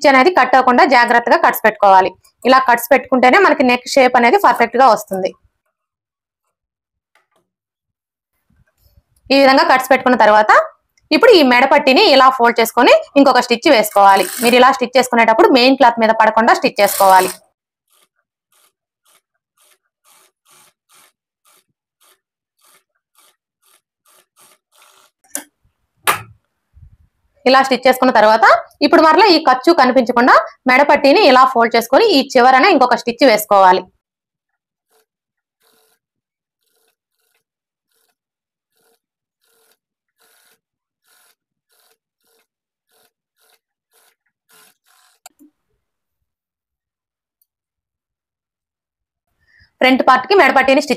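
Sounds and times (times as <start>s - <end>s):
sewing machine stitching: 13.2s - 14.9s, 16.5s - 25.5s, 34.8s - 45.5s.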